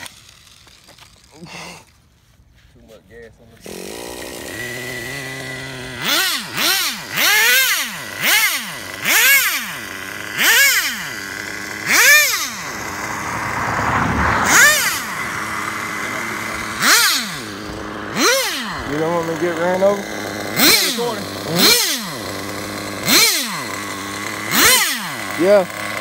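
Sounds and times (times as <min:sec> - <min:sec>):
nitro engine idling and revving: 0:00.0 - 0:02.0, 0:03.1 - 0:26.0.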